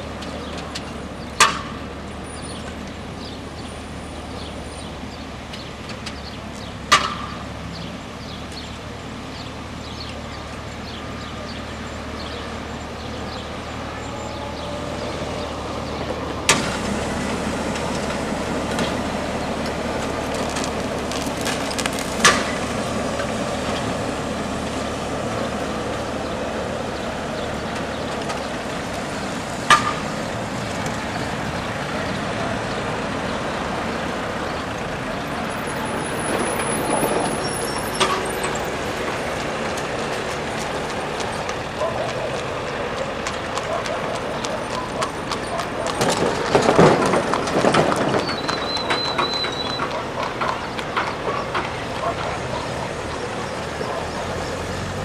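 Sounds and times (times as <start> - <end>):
road traffic: 0.0 - 55.0
tram rumbling on track: 0.0 - 55.0
tram wheels clacking over rail joints: 13.5 - 55.0.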